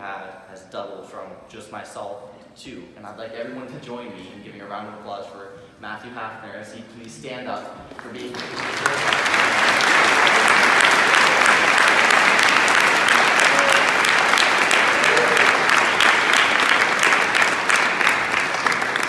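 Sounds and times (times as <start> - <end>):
crowd applauding: 7.9 - 19.0.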